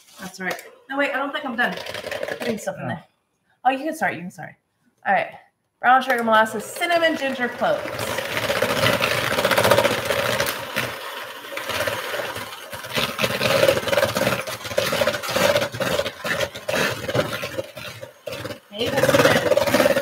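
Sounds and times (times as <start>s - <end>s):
electric mixer running: 1.4s - 2.6s, 6.1s - 20.0s.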